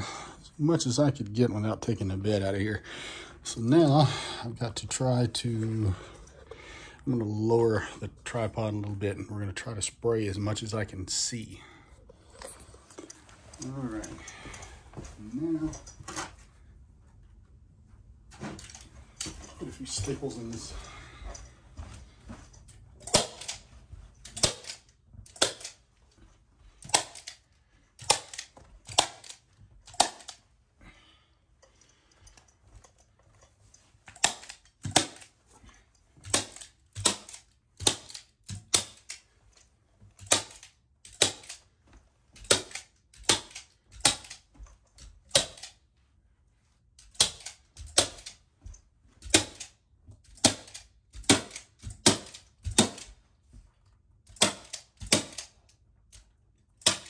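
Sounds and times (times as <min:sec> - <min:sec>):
stapler snapping: 0:24.3 - 0:25.8, 0:36.2 - 0:39.2, 0:42.4 - 0:44.4.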